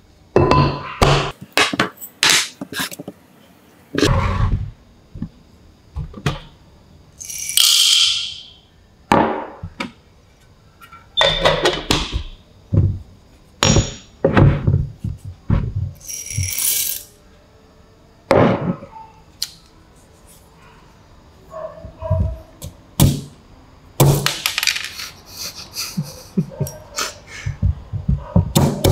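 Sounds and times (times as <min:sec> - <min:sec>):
coffee beans pouring and rattling: 0:16.0 - 0:17.1.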